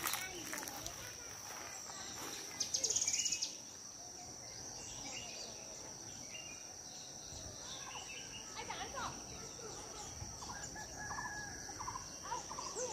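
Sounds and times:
faint bird chirps: 0:01.5 - 0:12.9
insect high-pitched drone: 0:09.1 - 0:12.9.

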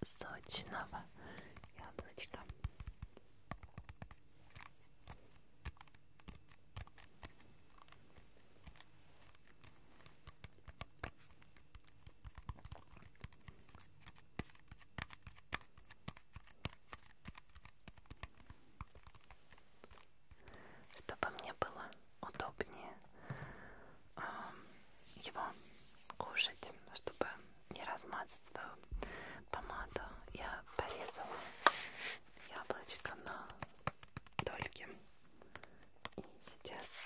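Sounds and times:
fingertips tapping on apple: 0:01.4 - 0:19.3, 0:33.0 - 0:36.4.

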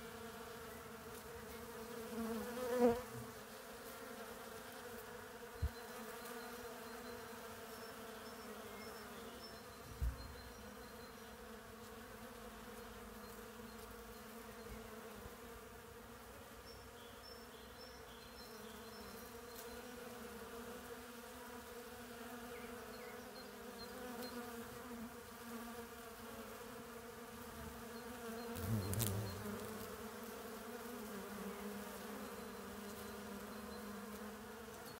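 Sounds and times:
bee buzzing close by: 0:00.0 - 0:35.0
bees buzzing: 0:00.0 - 0:35.0.

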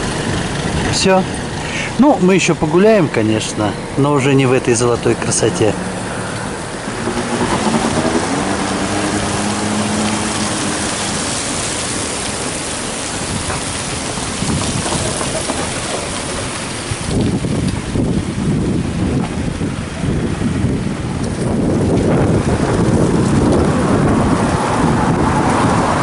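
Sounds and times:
wind rumble on microphone: 0:00.0 - 0:02.0, 0:03.0 - 0:26.0
gusty wind through trees: 0:00.0 - 0:26.0
dry leaves blowing: 0:05.4 - 0:26.0.

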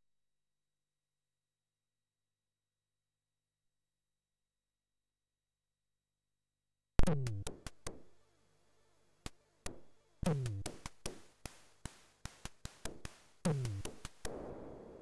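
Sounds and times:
synthesized kick drums: 0:07.0 - 0:08.1, 0:09.2 - 0:15.0.

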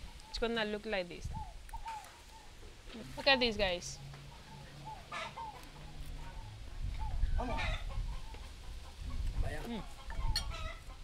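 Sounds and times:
hens clucking: 0:01.7 - 0:11.0.

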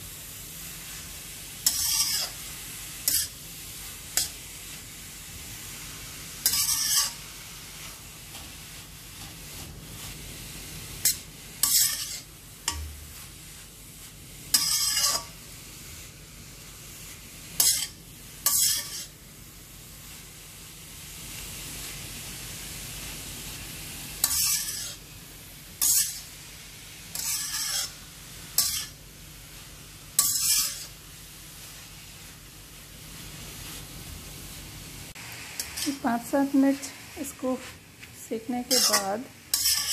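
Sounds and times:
carrots sizzling in ghee: 0:00.0 - 0:39.9
spatula scraping pan: 0:00.9 - 0:04.9, 0:05.6 - 0:15.5, 0:17.1 - 0:19.2, 0:24.2 - 0:25.0, 0:25.8 - 0:29.0, 0:30.1 - 0:31.0, 0:35.1 - 0:37.8, 0:38.4 - 0:39.9.

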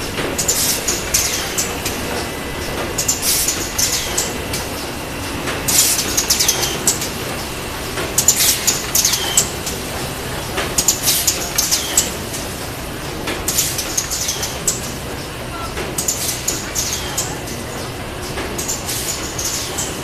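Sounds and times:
machine mechanical hum: 0:00.0 - 0:20.0
high clicking and squeaking: 0:00.4 - 0:04.9, 0:05.7 - 0:07.6, 0:08.2 - 0:09.6, 0:13.5 - 0:15.3, 0:16.0 - 0:20.0.

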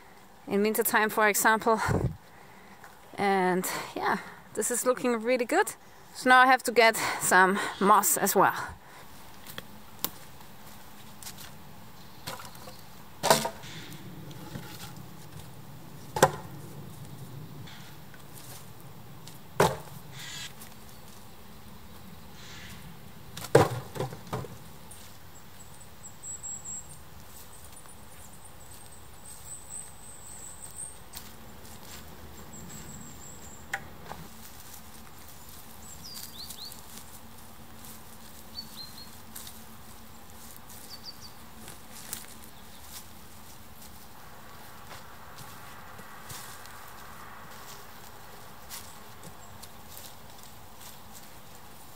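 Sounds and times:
logs knocking on wood: 0:12.2 - 0:13.6, 0:16.1 - 0:16.5, 0:19.6 - 0:19.9, 0:23.4 - 0:24.6.

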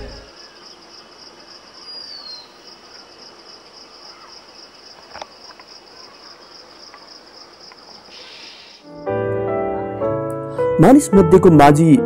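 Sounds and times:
crickets trilling: 0:00.0 - 0:09.0.

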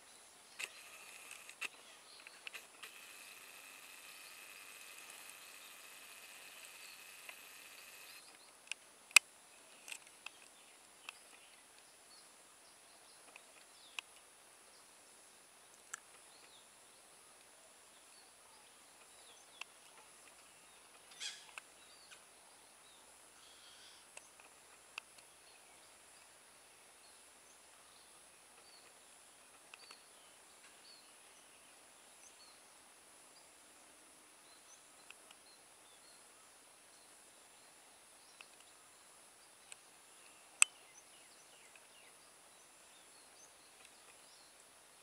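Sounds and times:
brief crackle: 0:00.6 - 0:11.2
sharp clicks: 0:00.6 - 0:11.2
bird chirps: 0:18.0 - 0:22.3.

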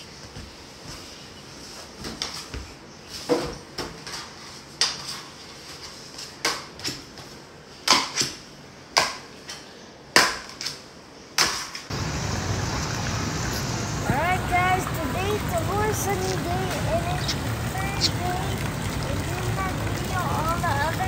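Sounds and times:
swim fins slapping tiled floor: 0:11.4 - 0:21.0.

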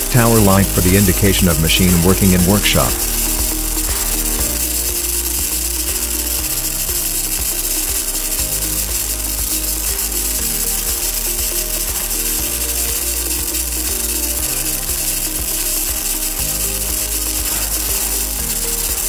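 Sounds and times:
welding arc crackling: 0:00.0 - 0:19.0.

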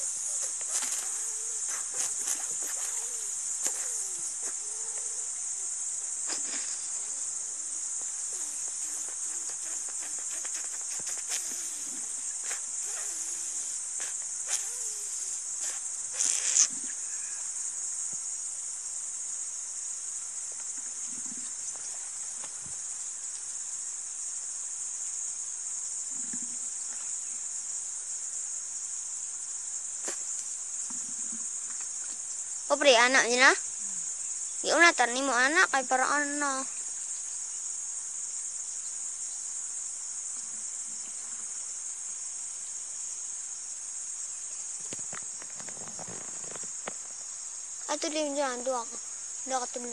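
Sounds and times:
high-pitched insect chorus: 0:00.0 - 0:49.9
faint rustles and knocks: 0:44.8 - 0:47.2.

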